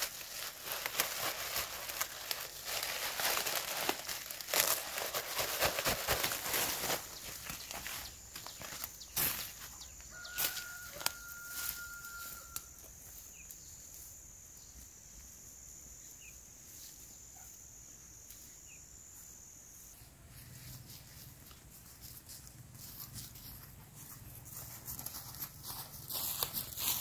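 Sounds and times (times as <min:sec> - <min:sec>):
plastic bag crinkling: 0:00.0 - 0:09.4
footsteps through leafy brush: 0:00.0 - 0:14.1, 0:20.0 - 0:27.0
faint chirps: 0:07.1 - 0:21.3.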